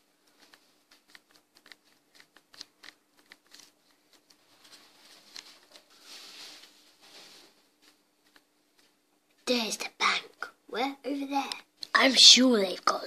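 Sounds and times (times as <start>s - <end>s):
soft breathy hiss: 4.6s - 8.0s.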